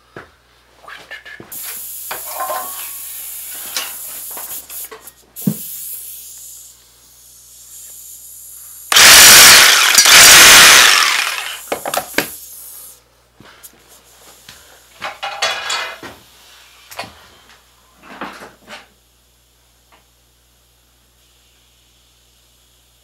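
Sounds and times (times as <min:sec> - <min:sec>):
cordless drill running: 0:08.9 - 0:11.8.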